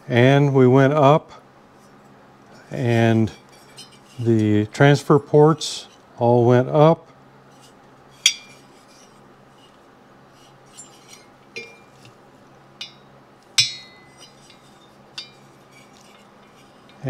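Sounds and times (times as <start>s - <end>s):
low steady hum: 0.0s - 17.0s
metal cylinder clinking on workbench: 8.2s - 9.1s, 10.7s - 12.1s, 12.8s - 17.0s.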